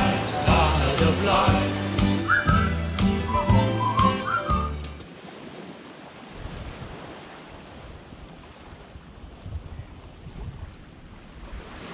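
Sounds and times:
sea waves washing: 0.0s - 11.9s
wind buffeting microphone: 6.2s - 11.9s.

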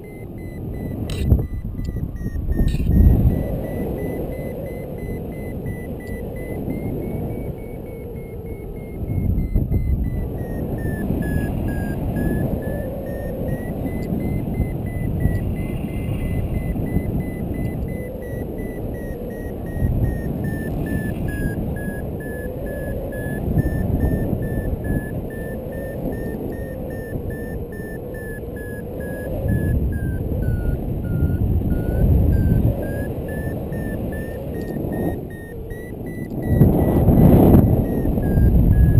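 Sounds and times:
variometer high beeps: 0.0s - 38.9s
wind rushing over microphone: 0.0s - 38.9s.

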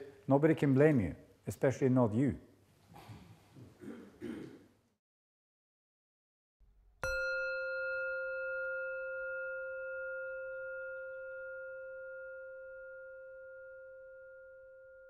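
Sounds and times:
singing bowl ringing: 7.0s - 15.0s.

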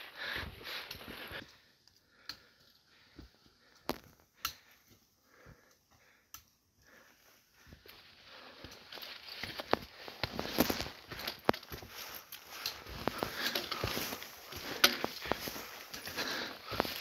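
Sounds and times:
soft breathing: 0.0s - 17.0s
footsteps on dirt trail: 7.7s - 17.0s
trekking pole taps: 12.6s - 16.1s.

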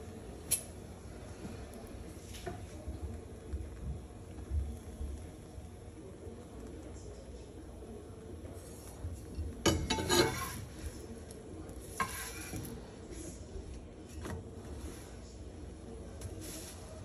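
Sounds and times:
bread sizzling: 0.0s - 17.0s
metal spatula scraping skillet: 9.7s - 10.8s, 11.8s - 12.7s.

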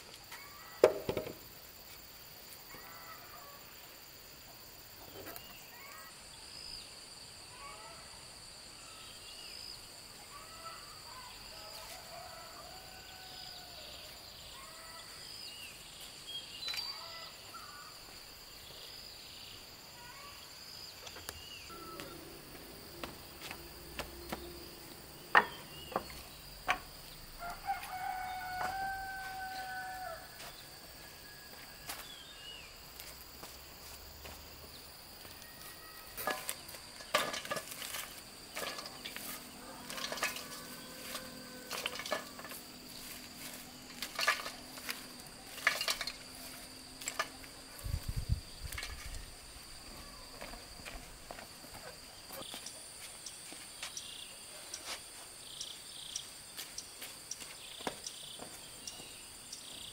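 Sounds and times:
rooster crowing: 2.7s - 3.7s, 11.5s - 14.1s, 27.3s - 32.0s, 39.3s - 43.0s
steady high-pitched hum: 21.6s - 27.4s.

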